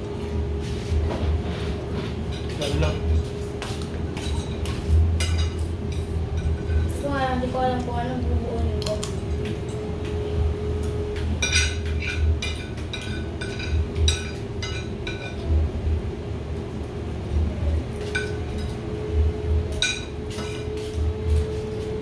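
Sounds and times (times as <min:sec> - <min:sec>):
dishes and glassware clinking: 0:04.2 - 0:07.0, 0:11.4 - 0:15.5, 0:18.0 - 0:18.8, 0:19.7 - 0:20.8.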